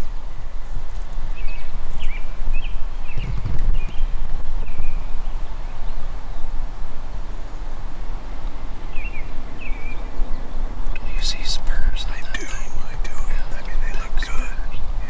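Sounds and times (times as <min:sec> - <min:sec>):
wind rumble on microphone: 0:00.0 - 0:11.0
small bird chirping: 0:01.4 - 0:05.0.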